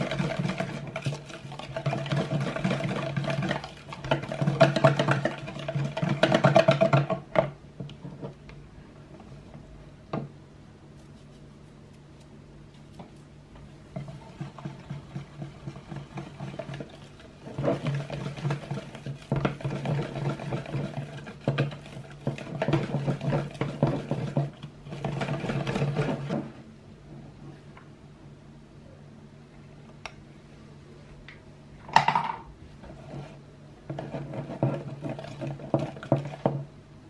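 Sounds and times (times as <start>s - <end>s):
whisk clattering in plastic bowl: 0.0s - 8.4s, 13.9s - 26.5s, 33.9s - 36.7s.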